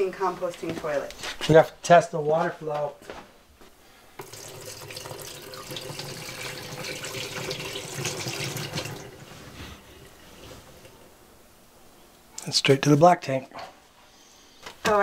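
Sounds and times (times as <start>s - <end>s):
water trickling down drain: 4.2s - 9.3s
water pouring and splashing: 4.2s - 11.0s.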